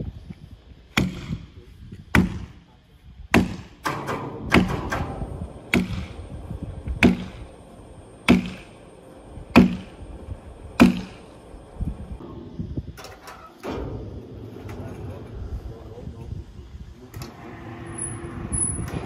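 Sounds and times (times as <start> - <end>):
tool striking wood: 3.3 - 5.1, 5.7 - 6.1, 7.0 - 7.4, 8.3 - 8.7, 9.5 - 9.9, 10.8 - 11.2.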